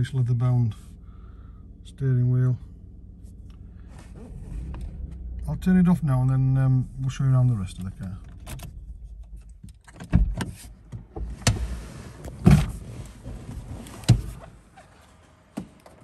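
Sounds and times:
car engine idling: 0.0 - 10.0.

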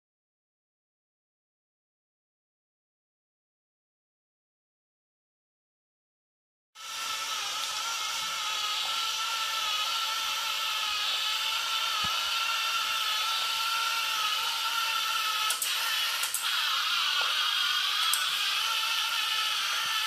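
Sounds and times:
robot vacuum motor whine: 6.8 - 20.0.

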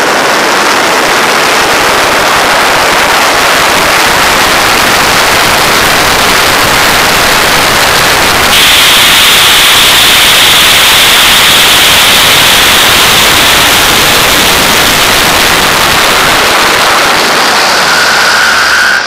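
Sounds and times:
airflow rushing over camera: 0.0 - 19.0
high steady whistle: 1.5 - 19.0.

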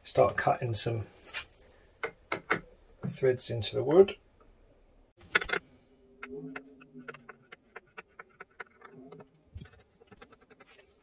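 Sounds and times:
screw creaking into wood: 5.2 - 5.6.

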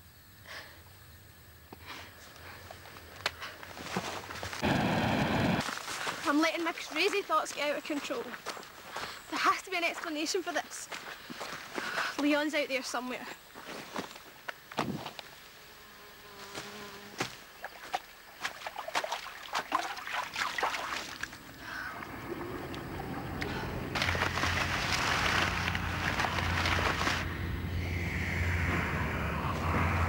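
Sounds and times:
footsteps in long grass: 2.7 - 12.3, 16.4 - 19.4, 23.9 - 27.3
buzzing drone: 25.3 - 30.0
sweeping tone: 27.2 - 30.0.

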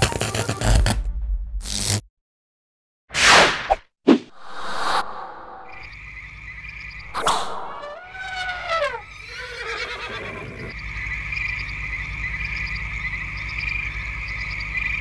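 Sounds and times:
frogs calling: 5.7 - 15.0
horse-like whinny: 7.3 - 10.7.

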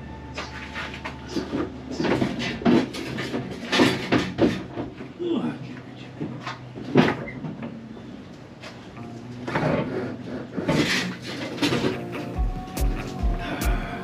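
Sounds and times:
clunks and scrapes: 0.3 - 5.2, 6.2 - 7.8, 8.6 - 12.4.

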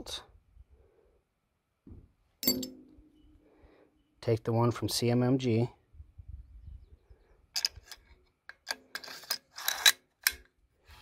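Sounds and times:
metallic clicks of gun bolt handling: 7.5 - 10.6.

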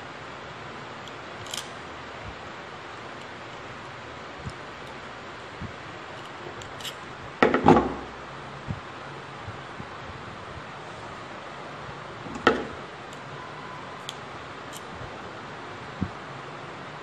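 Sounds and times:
steady hiss: 0.0 - 17.0
pliers clattering: 1.0 - 5.1, 6.1 - 7.1
pliers clicking on copper wire: 1.0 - 7.1, 14.0 - 15.0.

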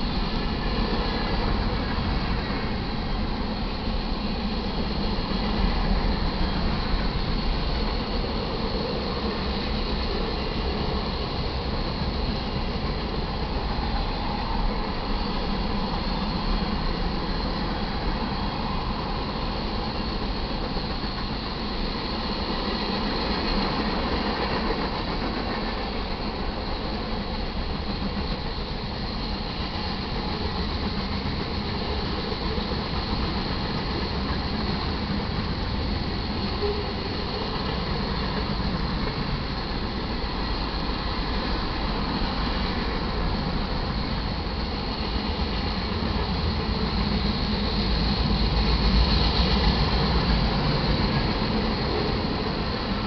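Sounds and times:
train wheels clattering on rails: 0.0 - 53.0.

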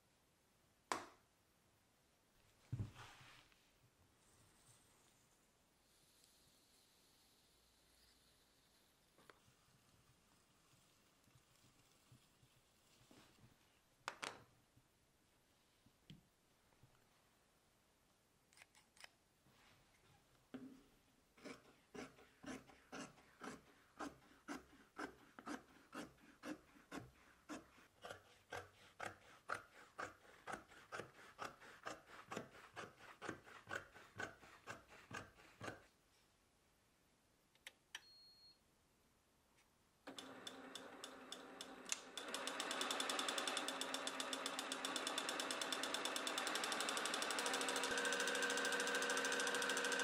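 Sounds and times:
shears cutting leather: 21.4 - 35.9
sewing machine running: 40.1 - 50.0.

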